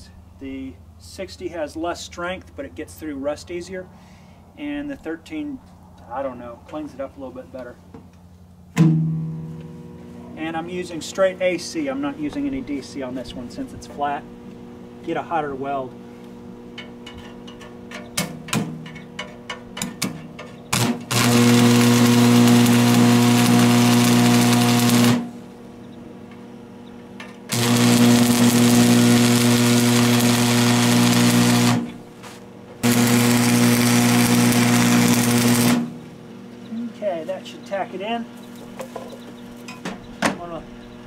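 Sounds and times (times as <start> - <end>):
steady hum: 0.0 - 41.0
welding arc crackling and buzzing: 20.7 - 25.8, 27.4 - 36.2.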